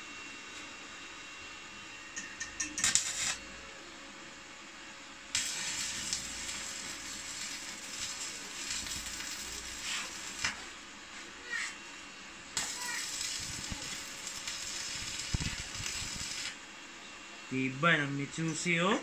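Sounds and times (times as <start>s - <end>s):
welding arc crackling hiss: 2.6s - 3.6s, 5.3s - 16.7s.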